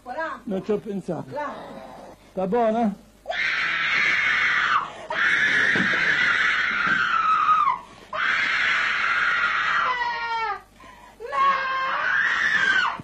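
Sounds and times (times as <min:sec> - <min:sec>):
woman screaming: 0:03.3 - 0:10.6, 0:11.2 - 0:13.0.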